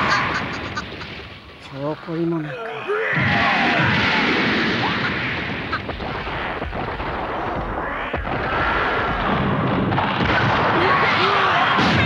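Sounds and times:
continuous blast rumble: 3.1s - 12.0s.

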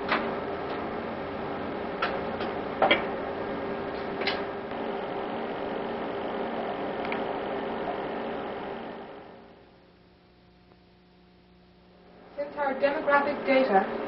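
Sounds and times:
steady machine hum: 0.0s - 14.0s.

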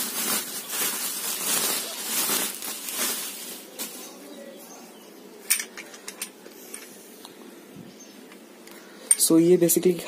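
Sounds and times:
bubble wrap crinkling: 0.0s - 4.3s.

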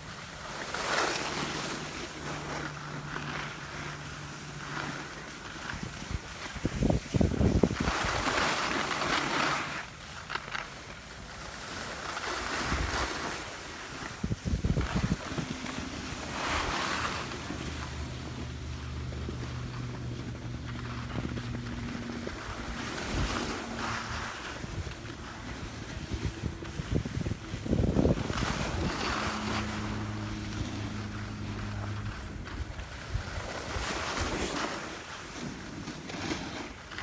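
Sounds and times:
ski edges scraping snow: 0.0s - 37.0s
wind buffeting microphone: 5.7s - 8.4s, 14.0s - 18.8s, 19.4s - 34.4s.

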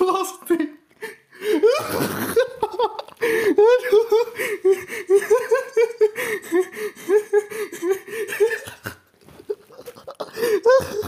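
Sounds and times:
person laughing: 1.5s - 11.0s.

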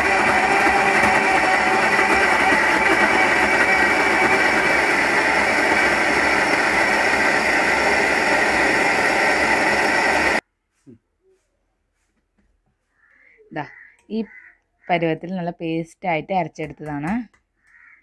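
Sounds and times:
mixer grinder running: 0.0s - 10.4s.

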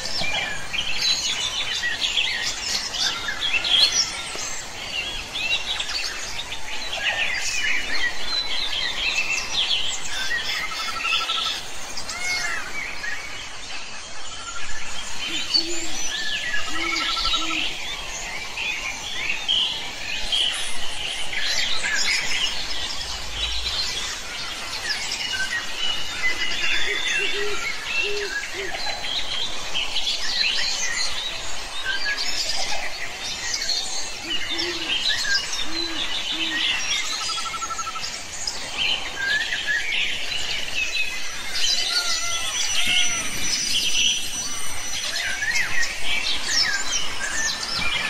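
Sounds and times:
birds chirping and singing: 0.0s - 48.0s
low bird calls: 13.9s - 30.3s, 34.1s - 48.0s.

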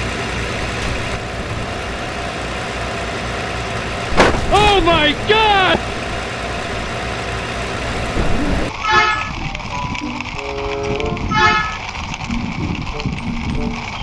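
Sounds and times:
vehicle horn toots: 8.7s - 9.4s, 10.6s - 11.8s.

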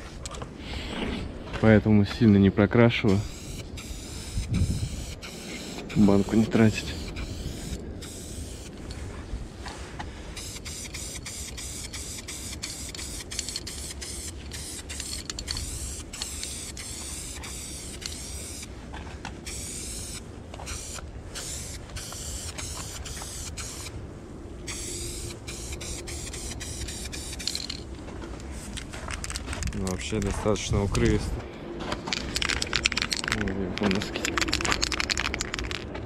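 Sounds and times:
aerosol spray can hissing: 3.2s - 8.8s, 10.4s - 18.7s, 19.5s - 23.9s, 24.7s - 27.6s.

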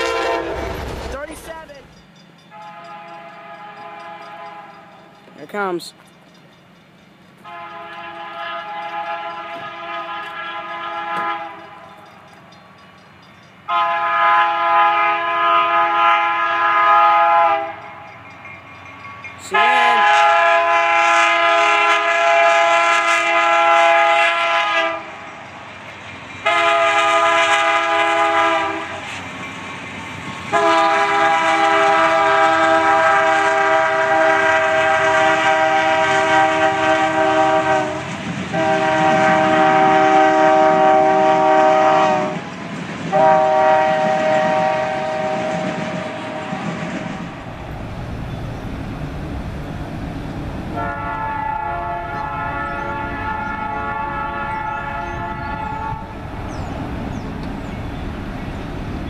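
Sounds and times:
locomotive air horn blasts: 0.0s - 0.7s, 2.5s - 4.9s, 7.4s - 11.9s, 13.7s - 17.8s, 19.5s - 25.2s, 26.4s - 29.0s, 30.5s - 42.4s, 43.1s - 46.6s, 50.8s - 56.2s
low train rumble: 0.0s - 59.0s.

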